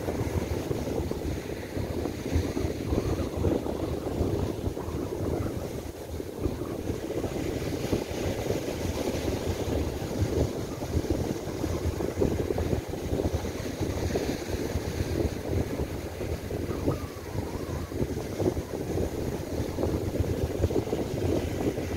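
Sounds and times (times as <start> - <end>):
strong gusting wind on microphone: 0.0 - 21.9
surf breaking on beach: 0.0 - 21.9.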